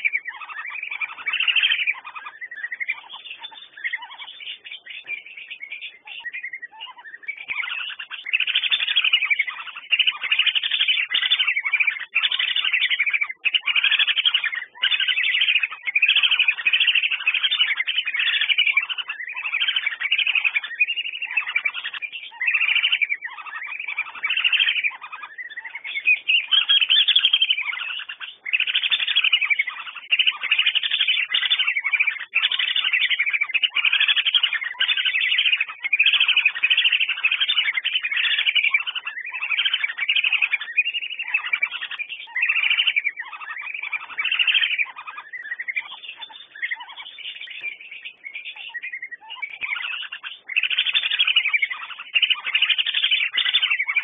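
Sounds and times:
whistling ducks calling: 0.0 - 54.0.

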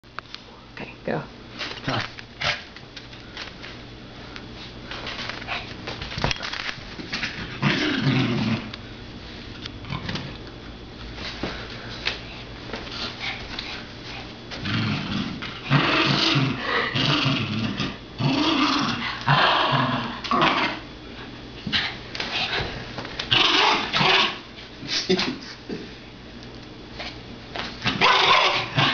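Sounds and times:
small dog growling: 7.4 - 8.7, 14.6 - 20.8.

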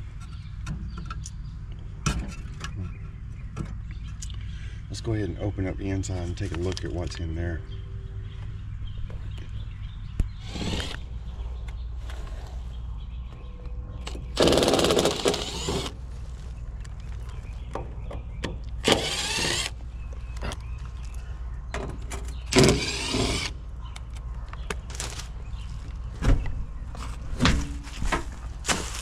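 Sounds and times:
impact driver backing out screws: 10.4 - 11.0, 14.0 - 16.0, 18.8 - 19.8, 22.5 - 23.6.

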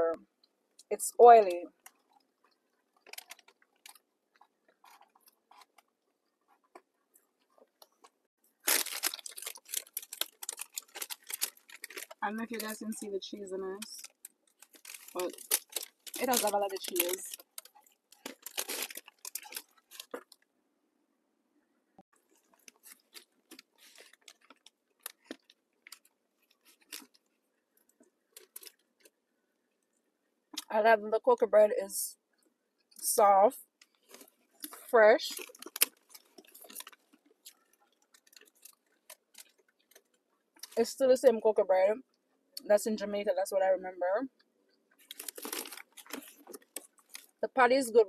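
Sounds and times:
chewing crunchy pastry: 1.7 - 13.0, 13.8 - 20.5, 22.1 - 30.7, 33.6 - 40.8, 44.3 - 47.4
paper bag crackling: 8.6 - 13.1, 13.8 - 20.3, 45.0 - 47.3.

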